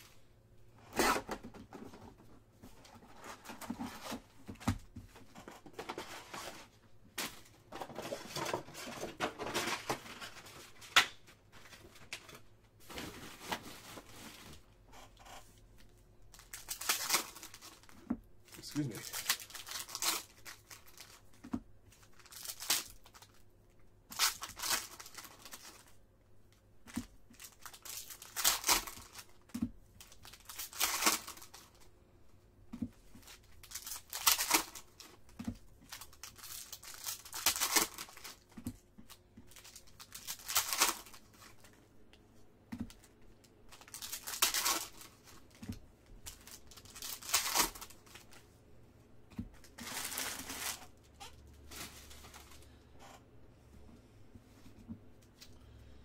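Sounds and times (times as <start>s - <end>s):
foil wrappers tearing and crinkling: 16.3s - 21.3s, 21.9s - 23.4s, 24.1s - 25.9s, 27.3s - 29.4s, 30.0s - 31.8s, 33.2s - 35.3s, 35.9s - 38.4s, 39.1s - 41.7s, 43.7s - 45.5s, 46.2s - 48.3s, 49.7s - 51.0s.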